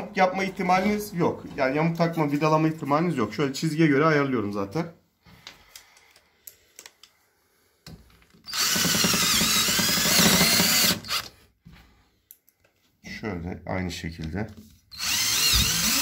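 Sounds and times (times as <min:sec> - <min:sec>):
drill driving screw: 0:08.4 - 0:11.4, 0:14.9 - 0:16.0.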